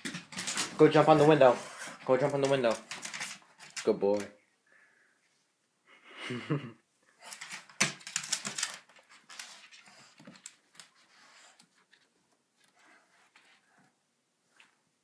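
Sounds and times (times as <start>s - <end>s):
dog nails clicking: 2.2s - 4.3s, 7.2s - 11.0s.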